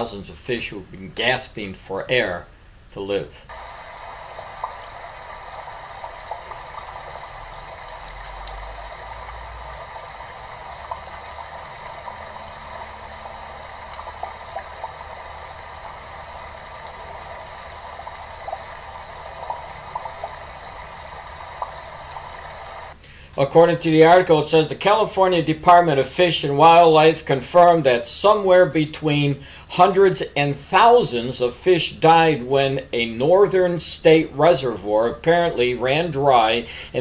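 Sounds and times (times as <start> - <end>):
fish splashing in shallow water: 3.5 - 23.0.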